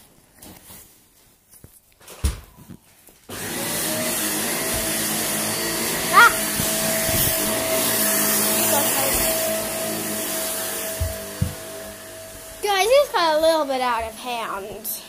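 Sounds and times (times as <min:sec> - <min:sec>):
vacuum cleaner humming: 0:03.3 - 0:15.0.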